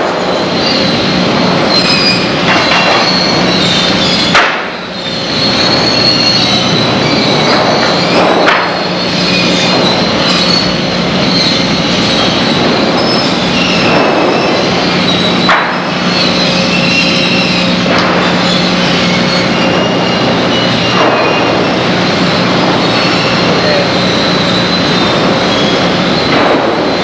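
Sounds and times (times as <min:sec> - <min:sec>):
sawmill machinery humming: 0:00.0 - 0:27.0
metallic squealing: 0:00.1 - 0:27.0
sharp knocks: 0:02.4 - 0:03.5, 0:04.3 - 0:04.8, 0:07.4 - 0:09.0.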